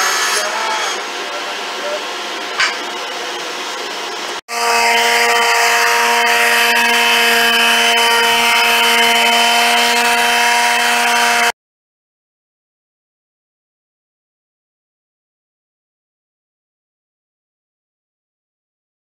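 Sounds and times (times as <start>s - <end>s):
palm sander running: 3.0s - 11.5s.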